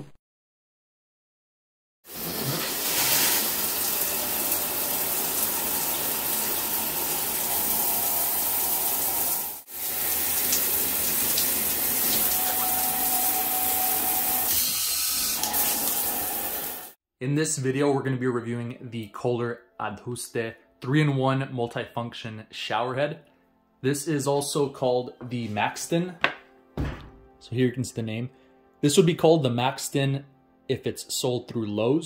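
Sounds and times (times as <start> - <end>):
shower water spraying on tiles: 2.1 - 17.0.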